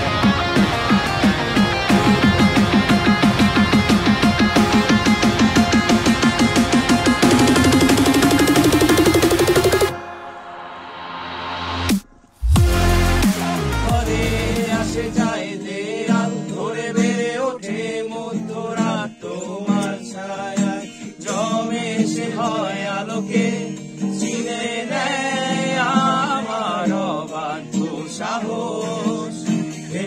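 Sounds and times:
acoustic guitar: 0.0 - 10.6, 11.9 - 30.0
deep falling electronic bass: 11.8 - 15.2
man singing: 12.6 - 30.0.

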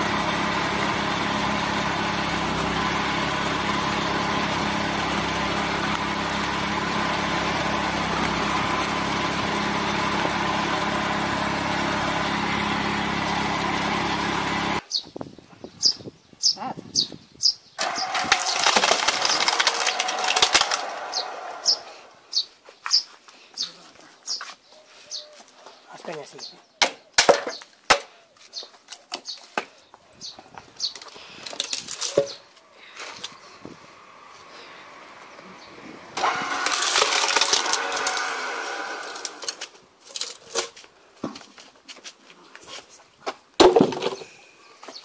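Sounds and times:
log splitter grinding wood: 0.0 - 14.8, 17.8 - 22.4, 30.8 - 41.7, 43.6 - 45.0
wood pieces knocking together: 17.8 - 20.9, 26.8 - 28.1, 31.0 - 32.5, 43.6 - 44.3
wood cracking and splintering: 17.8 - 21.8, 31.0 - 32.5, 36.2 - 41.6, 43.6 - 44.3.

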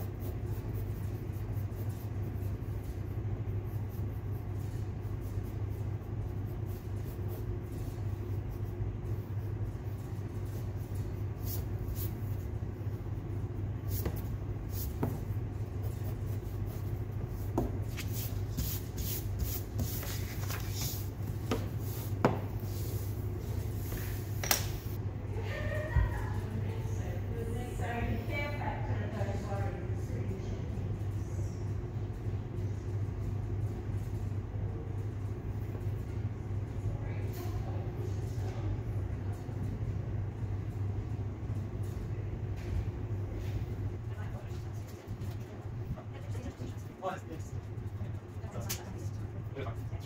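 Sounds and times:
pencil sketching on paper: 0.0 - 12.6, 13.8 - 24.0
steady low hum: 0.0 - 50.0.

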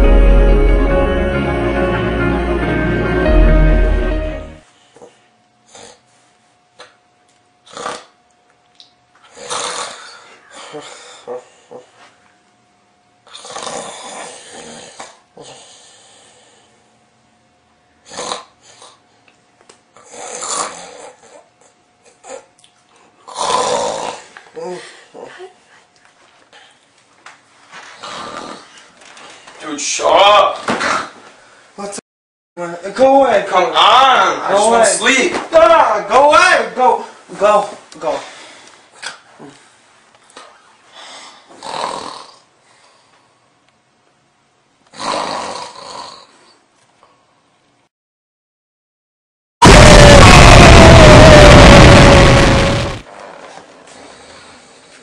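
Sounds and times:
man snoring: 13.3 - 15.6, 23.3 - 24.3, 41.6 - 42.5, 44.9 - 46.3
breathing: 15.4 - 16.9, 31.4 - 31.8, 38.1 - 38.8, 40.9 - 41.6, 42.6 - 43.5, 53.9 - 55.0.

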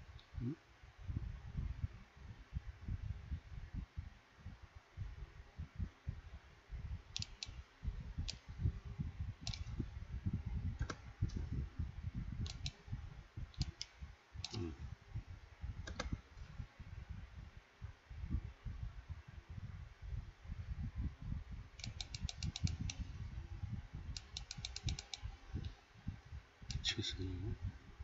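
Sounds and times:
low irregular rumble: 0.0 - 28.0
keyboard and mouse clicks: 9.4 - 9.7, 10.8 - 11.0, 12.4 - 12.8, 13.6 - 14.7, 15.8 - 16.2, 21.8 - 23.0, 24.2 - 25.8.

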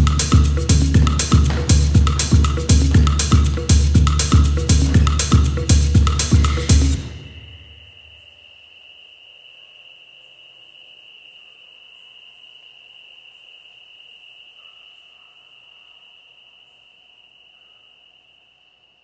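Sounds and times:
high-pitched insect buzz: 7.0 - 19.0.

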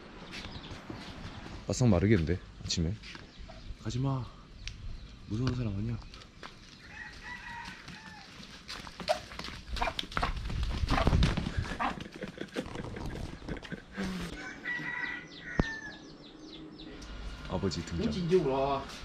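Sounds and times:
rooster crowing: 6.8 - 8.4, 14.0 - 16.2
duck wings flapping: 7.8 - 13.8.

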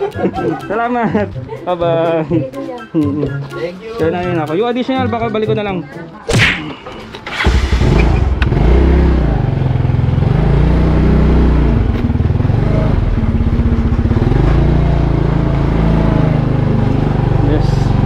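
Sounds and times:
motor scooter engine: 7.2 - 18.0.

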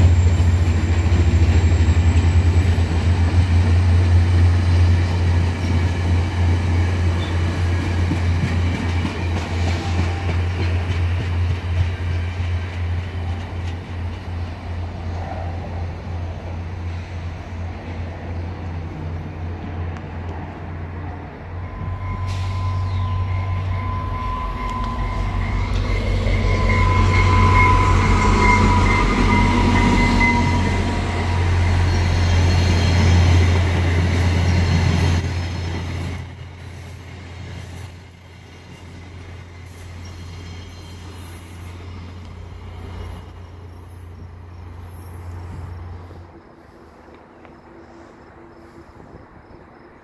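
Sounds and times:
train rumbling past: 0.0 - 50.0
high whine: 21.4 - 33.5.

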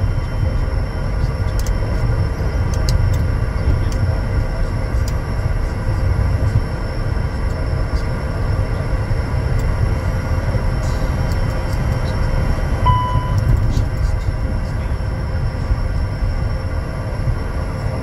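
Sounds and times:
jet engines idling rumble: 0.0 - 18.0
short beep: 12.9 - 13.5.

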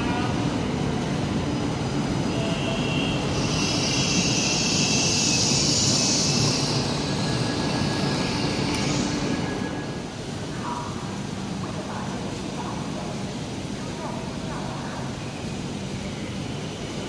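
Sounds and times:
hiss: 3.3 - 9.2.

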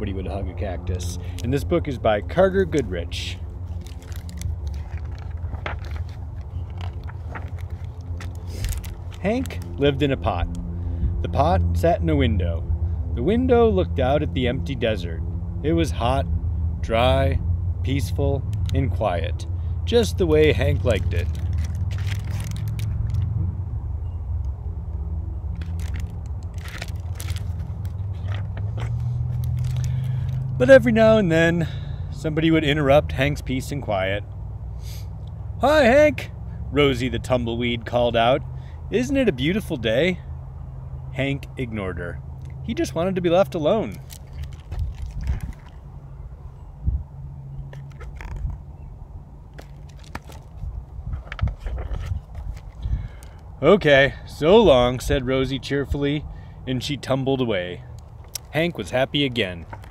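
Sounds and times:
steady low rumble: 0.0 - 32.4, 43.8 - 56.5
book pages rustling: 3.6 - 9.9, 20.2 - 23.3, 25.6 - 30.6, 43.9 - 45.8, 47.8 - 48.6, 49.6 - 53.4, 59.6 - 59.9.

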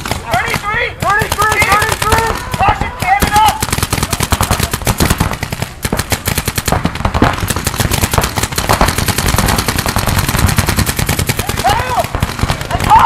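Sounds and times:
paintball markers firing: 0.0 - 13.0.

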